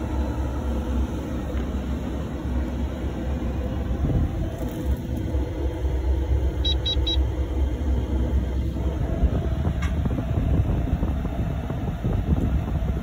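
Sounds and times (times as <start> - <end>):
steady low rumble: 0.0 - 13.0
quick electronic beeps: 6.6 - 7.2.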